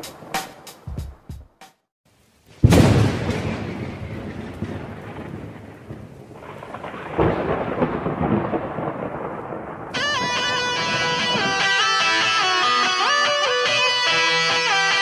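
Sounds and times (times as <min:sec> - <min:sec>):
thunder cracking and rumbling: 0:02.6 - 0:11.9.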